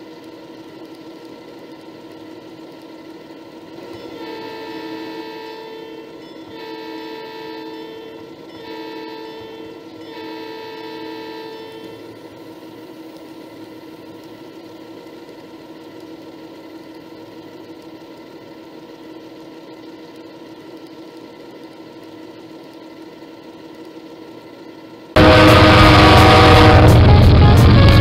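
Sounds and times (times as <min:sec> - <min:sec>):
model train running on track: 0:00.0 - 0:28.0
train horn note: 0:04.0 - 0:12.1, 0:25.2 - 0:28.0.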